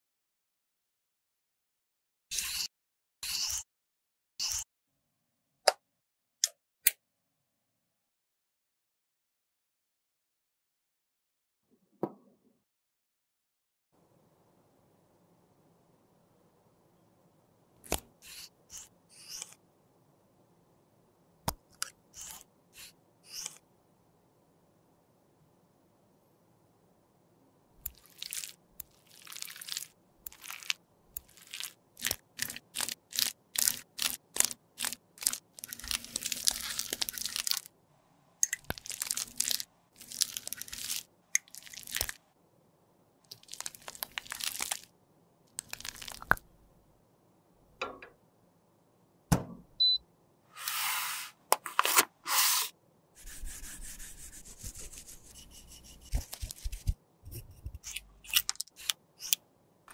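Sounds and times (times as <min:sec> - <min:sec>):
tool scraping lipstick: 0:02.3 - 0:03.6.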